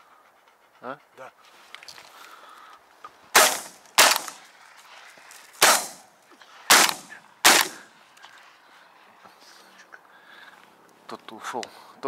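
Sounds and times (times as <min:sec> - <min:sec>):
shotgun shots: 0:03.4 - 0:04.4, 0:05.6 - 0:06.1, 0:06.7 - 0:07.9.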